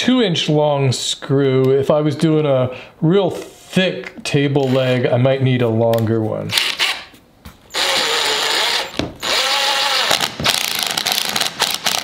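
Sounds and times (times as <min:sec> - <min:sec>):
cordless driver motor spinning: 0:07.8 - 0:12.0.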